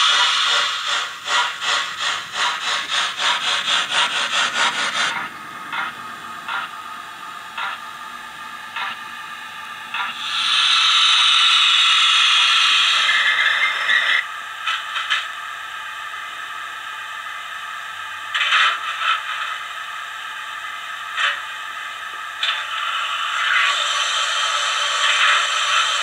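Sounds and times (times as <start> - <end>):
loud steam hiss: 0.0 - 6.6, 10.0 - 14.2, 22.6 - 26.0
steam locomotive chuffs: 0.0 - 26.0.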